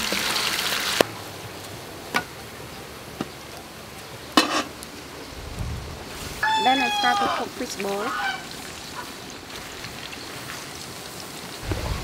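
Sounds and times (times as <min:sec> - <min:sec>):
rice sizzling in a wok: 0:00.0 - 0:01.1, 0:04.3 - 0:05.2, 0:06.1 - 0:12.0.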